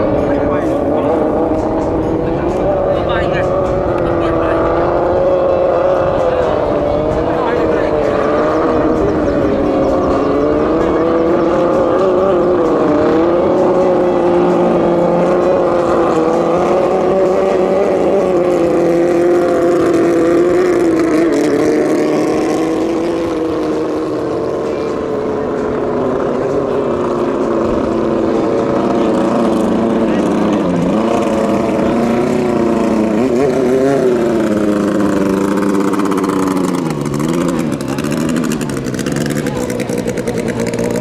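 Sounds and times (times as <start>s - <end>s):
boat engine running flat out: 0.0s - 41.0s.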